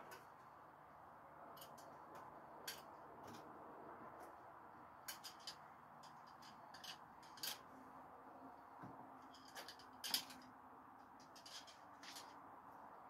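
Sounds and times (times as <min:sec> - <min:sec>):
metal screwdrivers clinking: 0:01.6 - 0:03.4, 0:05.1 - 0:07.7, 0:09.2 - 0:10.5, 0:11.2 - 0:12.4.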